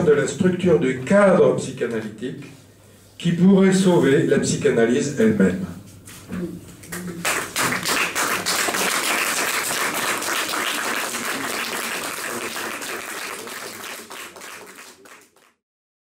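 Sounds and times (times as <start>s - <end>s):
audience applauding: 6.9s - 15.6s.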